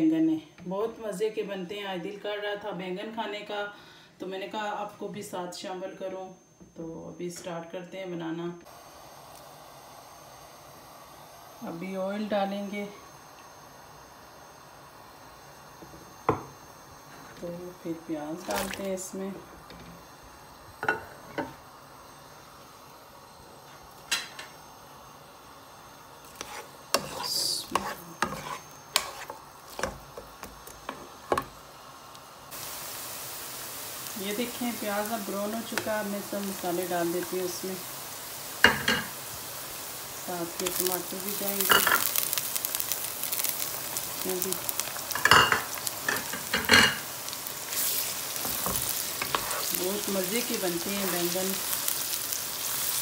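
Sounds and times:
onions sizzling: 8.6 - 53.0.

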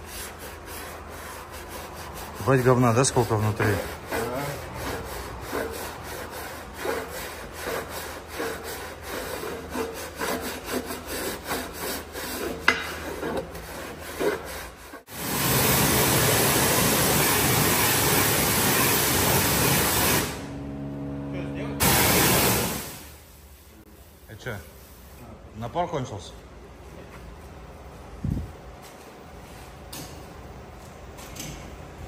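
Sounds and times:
scrubbing a steel wheel rim: 0.0 - 15.1
high-pressure water jet hissing: 15.1 - 20.4, 21.8 - 23.0.

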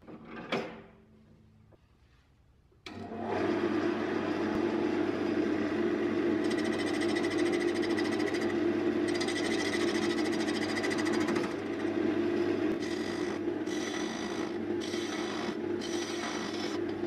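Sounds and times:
wood lathe motor humming: 2.9 - 17.0
turning tool rasping wood: 6.4 - 17.0.

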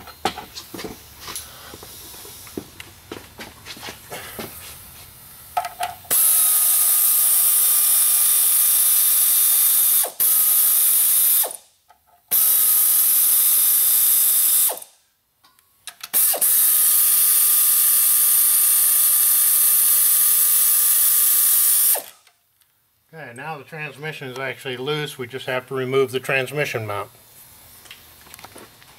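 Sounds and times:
power ratchet whining: 6.1 - 11.6, 12.3 - 14.9, 16.1 - 22.3.

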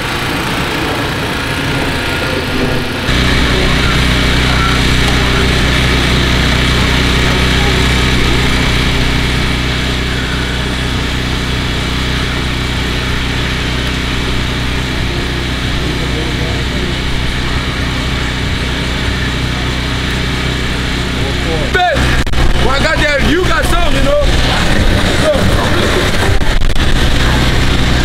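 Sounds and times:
generator running: 0.0 - 28.0.

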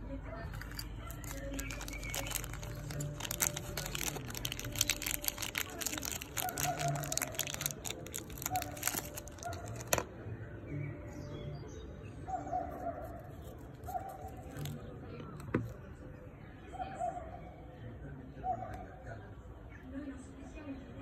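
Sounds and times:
plastic wrapper crinkling: 0.5 - 10.1, 13.4 - 14.9.

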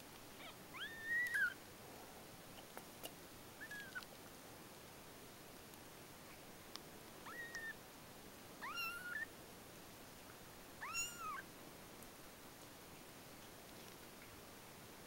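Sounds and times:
kittens mewing: 10.8 - 11.4.

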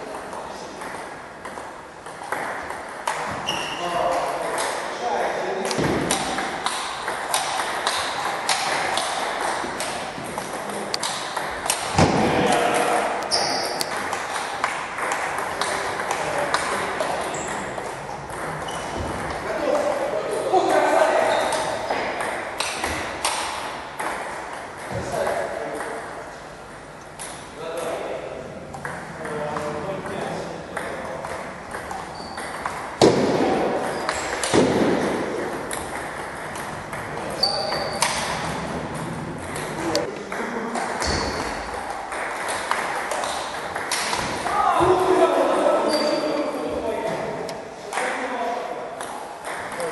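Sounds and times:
table tennis ball clicking: 5.7 - 12.0, 13.2 - 19.4
loud knocks: 33.0 - 37.1.

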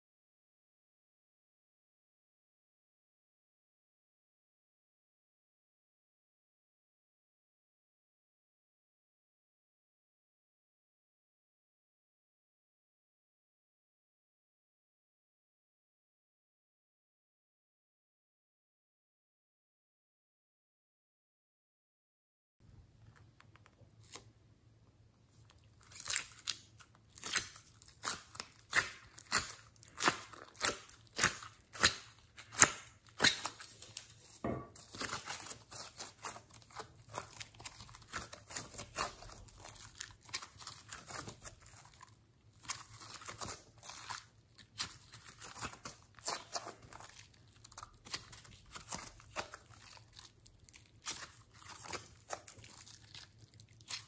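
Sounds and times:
slime being squeezed and kneaded: 25.4 - 54.0.

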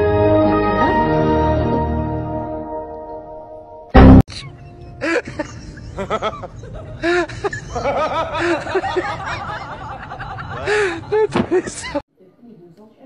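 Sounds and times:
person laughing: 4.3 - 12.0.

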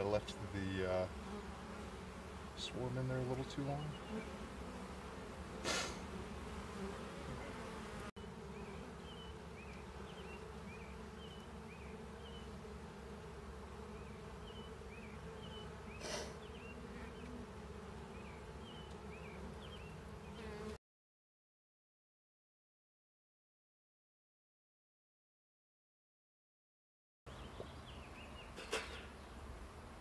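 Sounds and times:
bees buzzing: 0.0 - 20.8.

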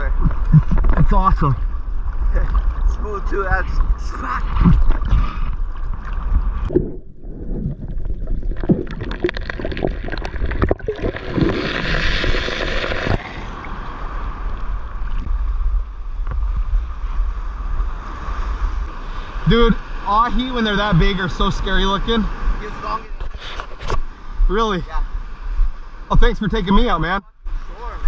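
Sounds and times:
wind on microphone: 0.0 - 26.0
waves breaking: 0.3 - 26.7
seawater splashing around camera: 0.4 - 15.8.

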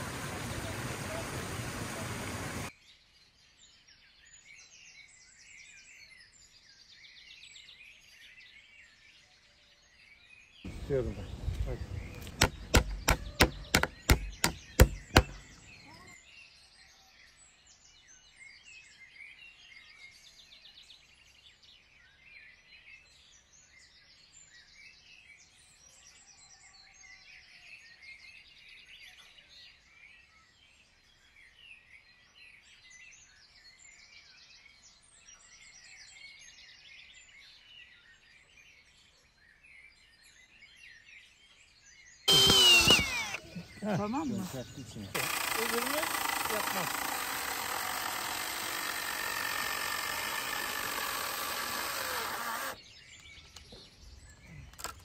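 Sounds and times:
small birds chirping: 0.0 - 55.0
sharp knocks: 12.2 - 15.6.

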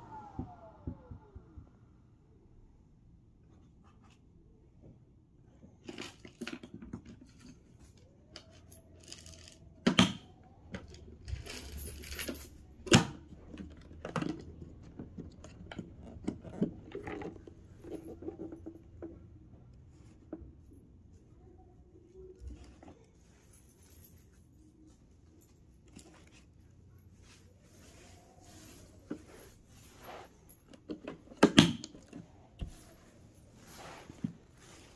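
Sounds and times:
rustling: 22.2 - 34.9.

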